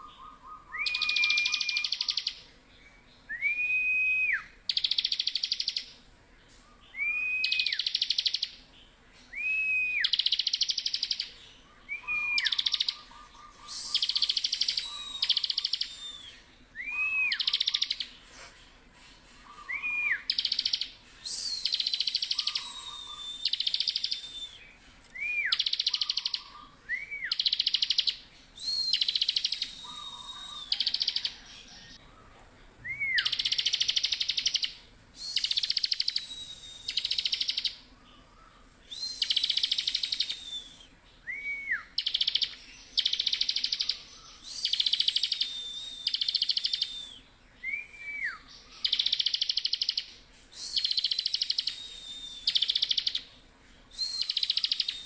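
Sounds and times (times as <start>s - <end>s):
thin high bird whistles: 0.0s - 2.3s, 11.9s - 18.6s, 19.4s - 31.5s, 38.9s - 53.3s, 53.9s - 55.0s
short rising bird chirps: 0.0s - 2.4s, 19.4s - 31.5s
bird buzzy chattering trills: 19.1s - 24.1s, 25.6s - 26.8s.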